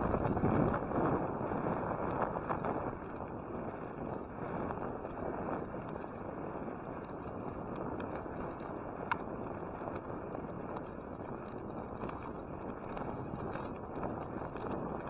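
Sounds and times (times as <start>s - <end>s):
bicycle tyres on asphalt: 0.0s - 15.0s
bike rattling clicks: 0.0s - 15.0s
sharp tick: 0.0s - 15.0s.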